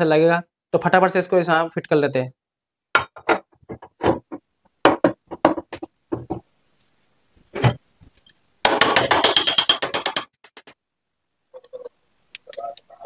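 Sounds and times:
steel parts clinking and knocking: 0:07.6 - 0:10.7.

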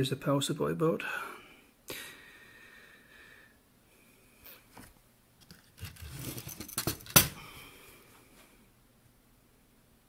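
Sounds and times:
rustling and scraping: 0:04.6 - 0:07.5.

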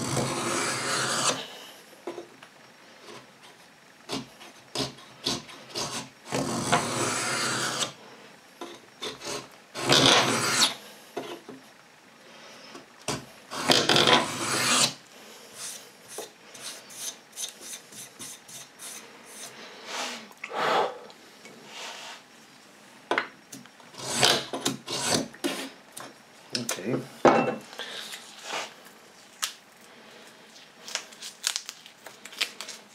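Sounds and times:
beading tool scraping wood: 0:00.0 - 0:01.4, 0:03.0 - 0:08.0, 0:08.6 - 0:11.4, 0:13.1 - 0:20.3, 0:23.9 - 0:25.8.

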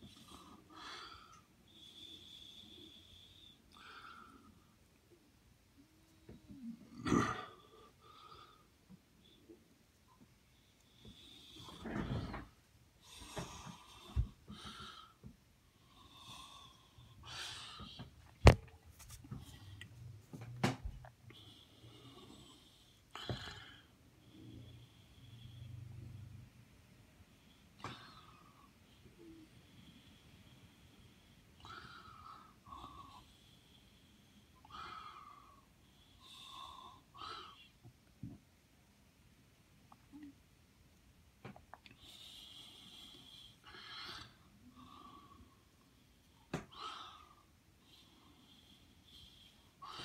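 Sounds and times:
person breathing softly: 0:21.0 - 0:26.4, 0:42.0 - 0:50.0.

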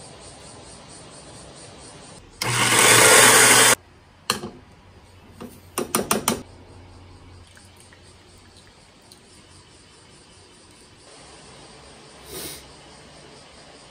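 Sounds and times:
electric coffee grinder running: 0:02.4 - 0:03.8.

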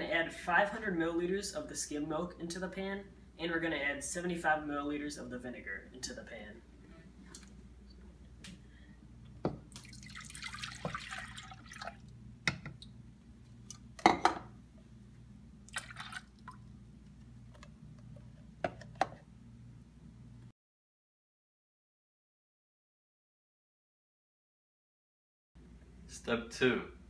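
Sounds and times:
milk pouring into saucepan: 0:09.7 - 0:12.2, 0:15.6 - 0:16.8.

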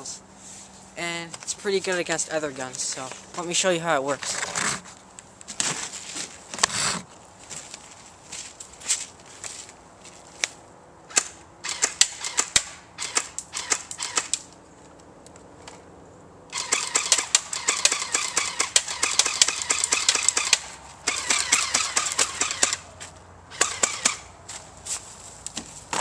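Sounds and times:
airsoft gun firing: 0:16.5 - 0:22.9, 0:23.5 - 0:24.3.

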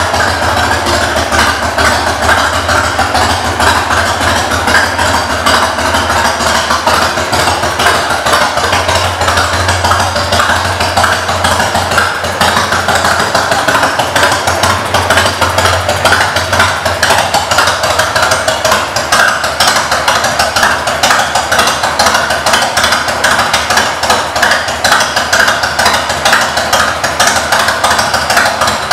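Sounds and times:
motorcycle engine idling: 0:00.0 - 0:28.9.

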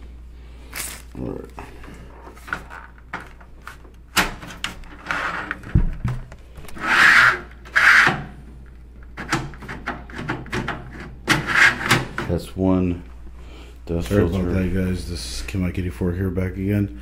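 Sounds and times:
plastic scraping rubs: 0:04.7 - 0:05.8, 0:09.2 - 0:12.3.

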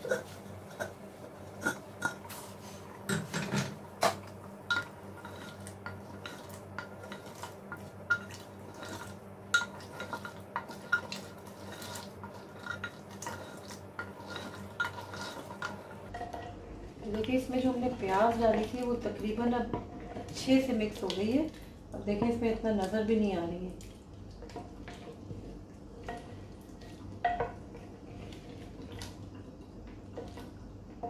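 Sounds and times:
low steady hum: 0:00.0 - 0:31.0
utensils clinking on clay pot: 0:03.1 - 0:17.2.

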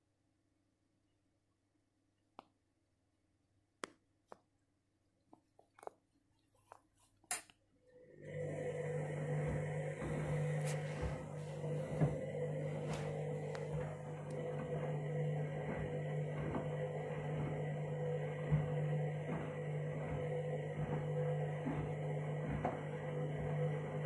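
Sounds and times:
washing machine low hum: 0:07.8 - 0:24.0
washing machine drum motor: 0:07.9 - 0:24.0.

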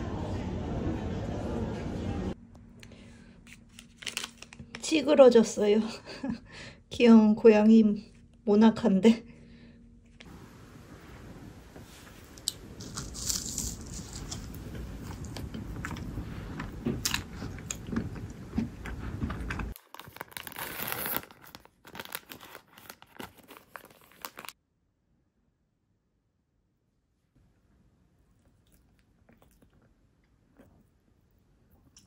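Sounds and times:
wrapper crinkling and tearing: 0:03.5 - 0:04.7, 0:12.8 - 0:14.6, 0:19.7 - 0:24.6.

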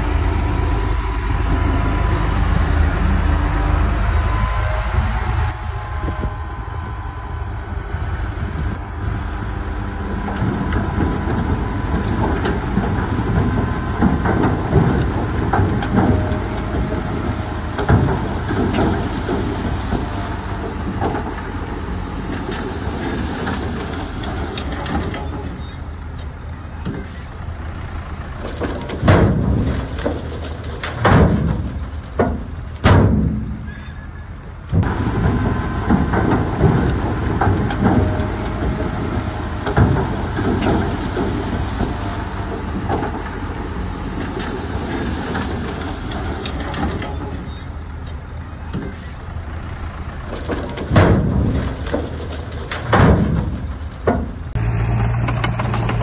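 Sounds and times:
heavy machinery engine rumble: 0:00.0 - 0:56.0
loud metal clanks: 0:28.4 - 0:33.9.

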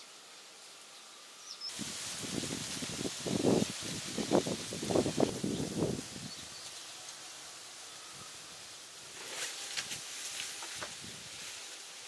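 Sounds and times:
faint high hiss: 0:00.0 - 0:12.0
footsteps on dry leaves and gravel: 0:09.1 - 0:12.0.

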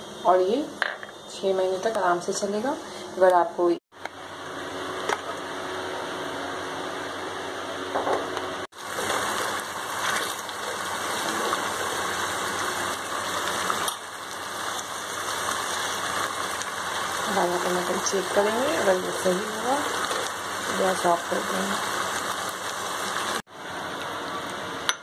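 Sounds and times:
sauce boiling and bubbling: 0:08.6 - 0:24.8.

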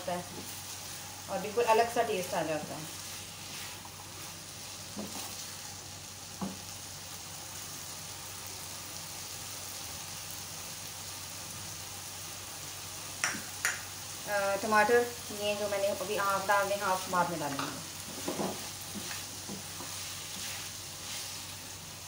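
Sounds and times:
potatoes sizzling in a frying pan: 0:00.0 - 0:22.0
spatula stirring and knocking: 0:04.8 - 0:05.4, 0:17.5 - 0:21.6.

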